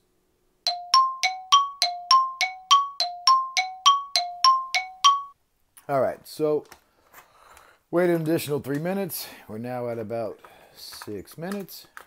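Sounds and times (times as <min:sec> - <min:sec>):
two-tone chime ringing: 0:00.7 - 0:05.4.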